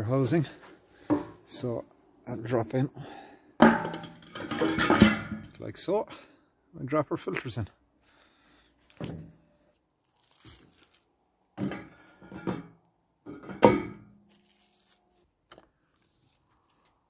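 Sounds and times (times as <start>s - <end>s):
metal parts knocking on steel deck: 3.6s - 5.5s
ringing metal clunk: 3.6s - 5.5s, 13.3s - 14.1s
plastic wrapping crinkling: 9.6s - 11.3s, 14.2s - 15.3s.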